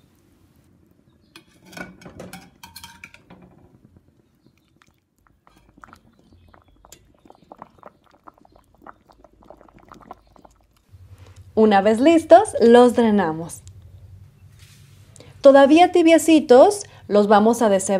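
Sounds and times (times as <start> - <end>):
simmering water clicks and pops: 3.8 - 11.5
low steady hum: 8.9 - 17.9.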